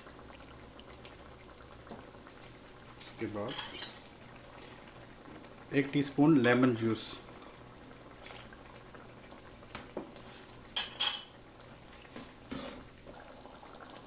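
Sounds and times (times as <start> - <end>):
utensils clinking on a pan: 3.5 - 4.1, 10.8 - 11.3.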